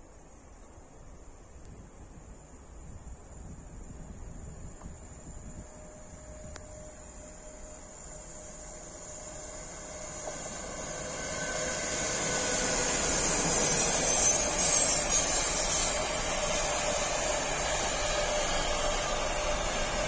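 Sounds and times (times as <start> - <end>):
electric locomotive passing: 4.5 - 20.0
train wheels rolling on rails: 4.6 - 20.0.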